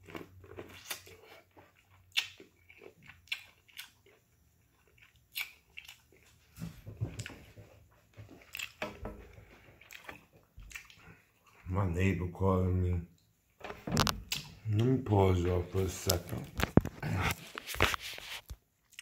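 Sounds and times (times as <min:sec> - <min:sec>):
person chewing corn: 0:00.0 - 0:11.7, 0:16.0 - 0:19.0.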